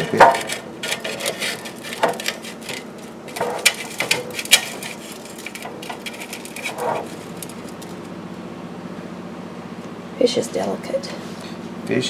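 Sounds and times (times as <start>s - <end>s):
metal spatula scraping fryer basket: 0.0s - 8.1s.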